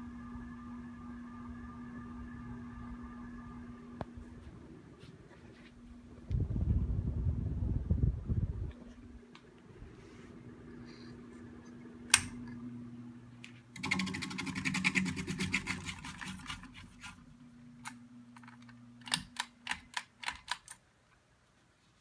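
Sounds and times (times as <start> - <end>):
ceiling fan motor humming: 0.0 - 22.0
fan fixture clicking and rattling: 18.3 - 20.8.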